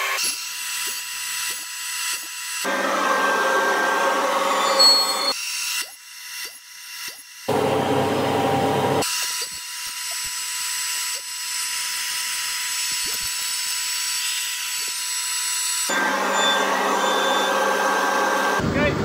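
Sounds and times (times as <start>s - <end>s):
router spindle cutting wood: 2.1s - 18.6s.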